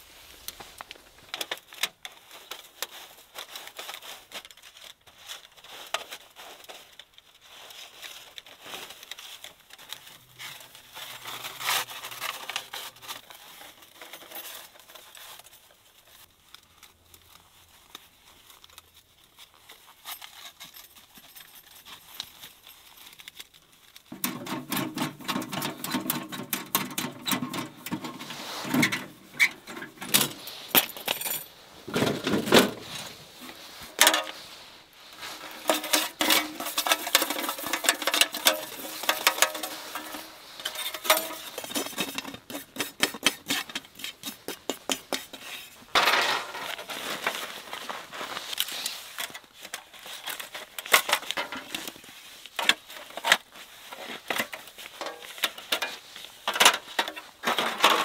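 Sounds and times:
metal plates clinking and scraping: 24.2 - 47.4.

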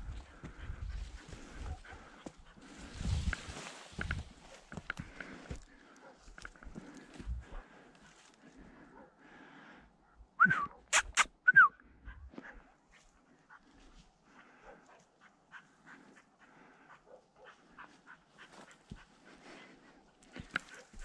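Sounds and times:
rustling in dry grass: 2.6 - 5.6.

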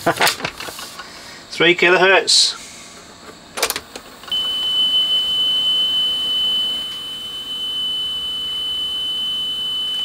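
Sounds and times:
steady test tone: 4.3 - 10.0.

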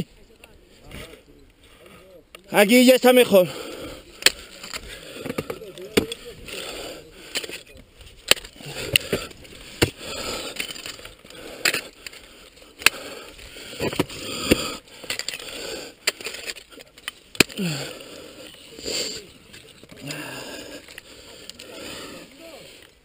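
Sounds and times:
ice scraping and crunching: 3.7 - 23.0
ice axe striking ice: 17.3 - 18.0.

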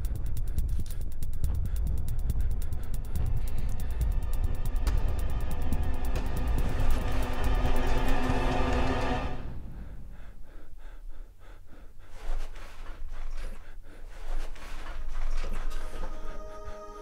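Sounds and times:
music: 0.0 - 9.9, 15.8 - 17.0
man gasping heavily: 9.7 - 14.3.

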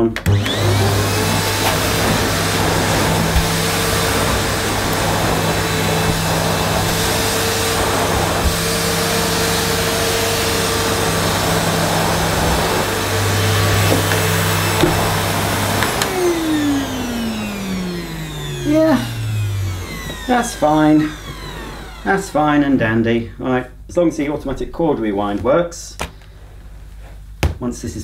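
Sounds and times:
vacuum cleaner motor humming: 0.2 - 23.1
motor winding down whine: 0.3 - 22.6.

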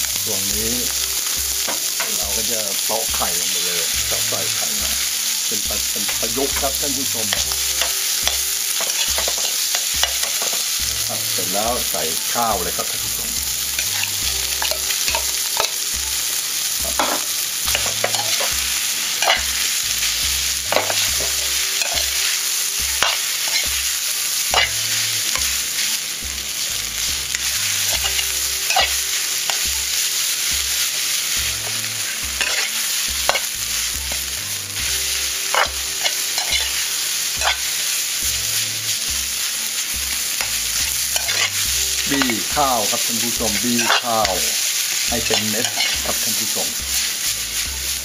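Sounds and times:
food sizzling in a pan: 0.0 - 48.0
metal ladle scraping a pan: 13.6 - 15.8, 16.8 - 19.7, 20.5 - 22.2, 22.9 - 23.8, 24.5 - 25.6, 31.6 - 34.9, 35.5 - 37.8, 41.1 - 47.0.

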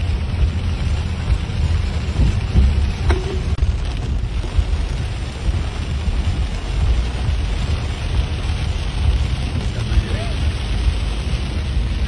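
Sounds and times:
car tyres rumbling on wet road: 0.0 - 12.0
heavy rain on car: 0.0 - 12.0.

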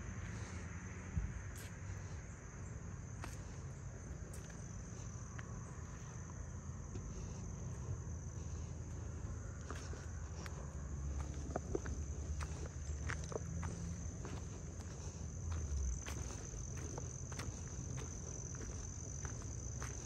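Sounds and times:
insect chorus: 0.0 - 20.0
walking rumble and scuffs: 0.0 - 20.0.

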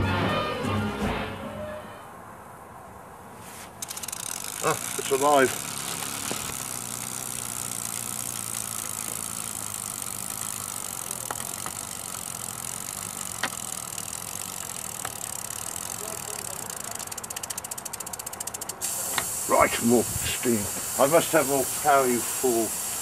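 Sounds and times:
steam hissing: 3.9 - 13.9, 18.8 - 23.0.

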